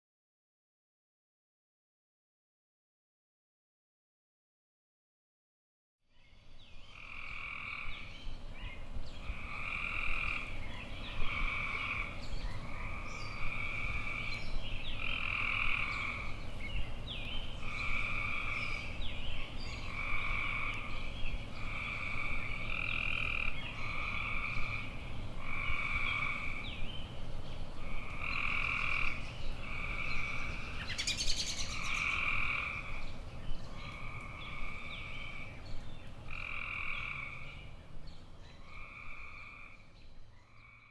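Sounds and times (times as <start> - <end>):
frogs calling in chorus: 6.9 - 8.1, 9.2 - 10.6, 11.2 - 16.4, 17.6 - 19.0, 19.8 - 26.7, 27.8 - 33.1, 33.8 - 35.6, 36.3 - 37.6, 38.6 - 40.9.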